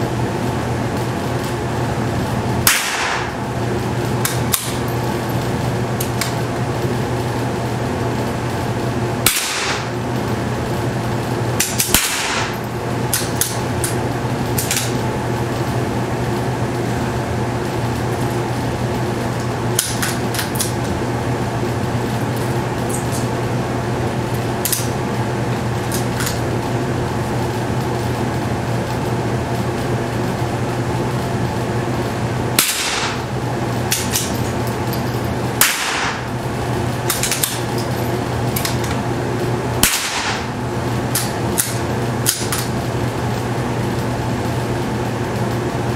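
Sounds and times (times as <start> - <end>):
steady low hum: 0.0 - 45.9
rifle shots: 2.7 - 3.3, 9.3 - 9.9, 11.8 - 12.6, 32.6 - 33.2, 35.6 - 36.2, 39.8 - 40.4.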